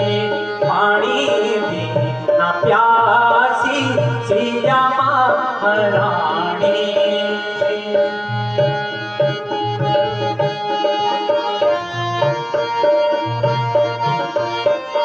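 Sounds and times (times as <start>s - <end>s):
hand drum rhythm: 0.0s - 15.0s
melodic instrument long notes: 0.0s - 15.0s.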